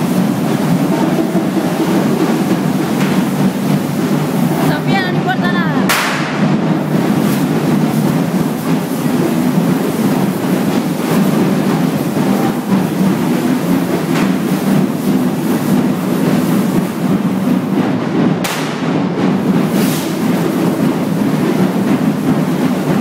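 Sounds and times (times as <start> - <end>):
sharp bang: 5.9 - 6.6, 18.4 - 19.2.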